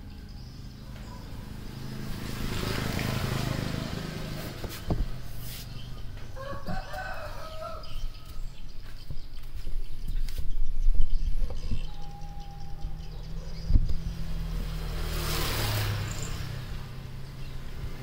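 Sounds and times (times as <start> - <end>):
rooster crowing: 6.4 - 8.4, 11.9 - 13.1.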